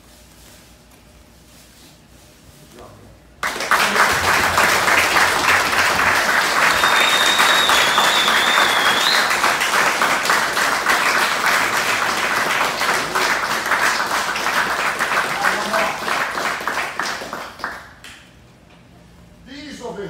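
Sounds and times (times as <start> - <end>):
group applauding: 3.4 - 18.3
high wavering whistle: 6.6 - 9.5.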